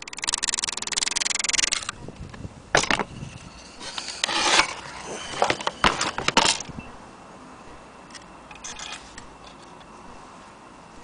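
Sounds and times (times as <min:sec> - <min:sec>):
gramophone scratchy scrape: 0:03.1 - 0:06.2.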